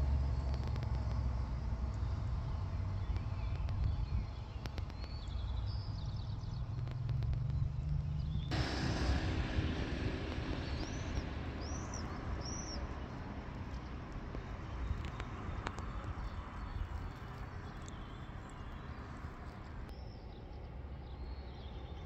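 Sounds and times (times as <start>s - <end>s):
low rumble: 0.0s - 22.0s
bird chirping: 1.9s - 8.6s, 10.0s - 22.0s
steady hiss: 8.5s - 15.5s.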